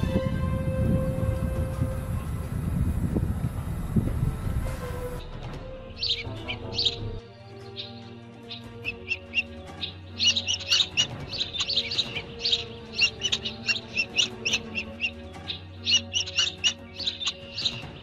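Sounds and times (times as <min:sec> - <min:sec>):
soft background music: 0:00.0 - 0:18.0
small birds chirping: 0:06.0 - 0:18.0.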